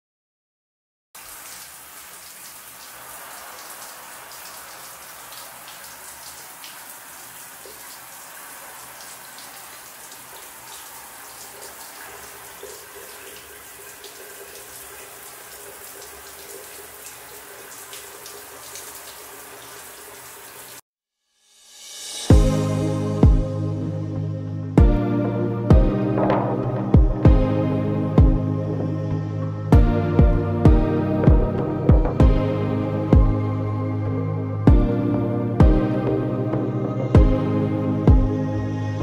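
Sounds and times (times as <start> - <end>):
shower spray running: 1.2 - 20.8.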